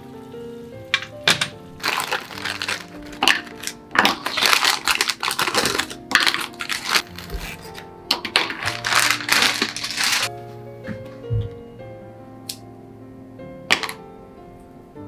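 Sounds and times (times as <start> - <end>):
piano music: 0.0 - 15.0
frozen beans rustling and clattering: 0.9 - 10.3.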